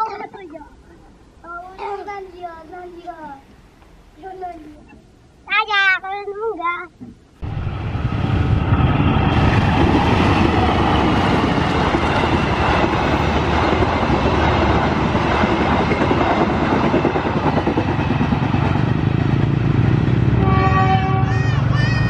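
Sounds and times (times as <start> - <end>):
train wheels clattering on rails: 9.3 - 20.3.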